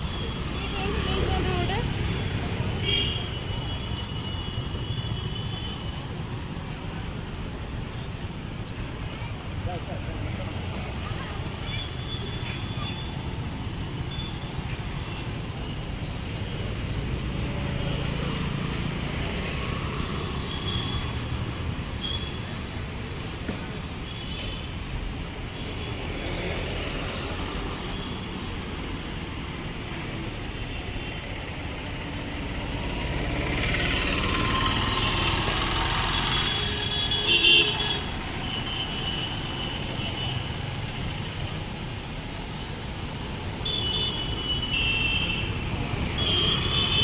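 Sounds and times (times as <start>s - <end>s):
traffic engines humming: 0.0s - 47.0s.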